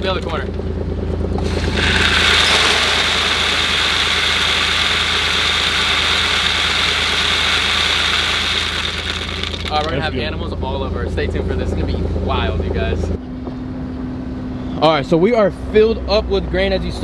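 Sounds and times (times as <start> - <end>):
grain pouring into truck bed: 1.4 - 10.0.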